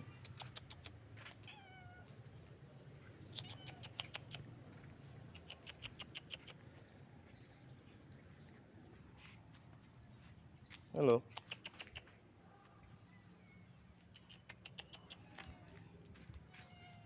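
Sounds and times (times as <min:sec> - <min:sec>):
faint cat meow: 0:01.2 - 0:02.2, 0:03.3 - 0:04.0, 0:15.2 - 0:17.0
clusters of sharp clicks: 0:03.3 - 0:04.5, 0:05.2 - 0:06.7, 0:11.0 - 0:12.1, 0:14.0 - 0:15.2.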